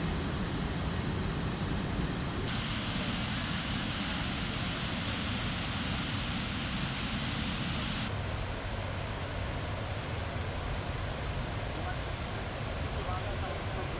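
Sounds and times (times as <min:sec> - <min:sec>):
water gushing into river: 0:02.5 - 0:08.1.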